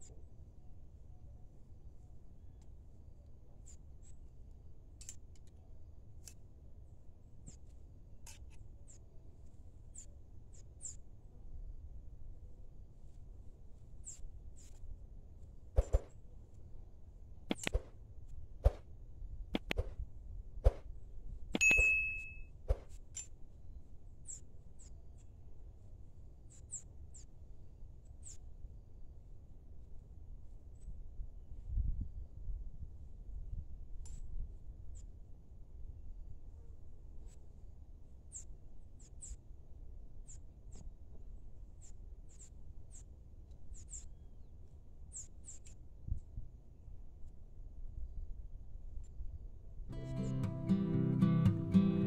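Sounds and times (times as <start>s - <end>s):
small birds chirping: 8.6s - 9.1s, 9.7s - 11.2s, 13.9s - 14.8s, 24.2s - 25.3s, 26.5s - 27.4s, 38.3s - 39.5s, 41.8s - 45.8s.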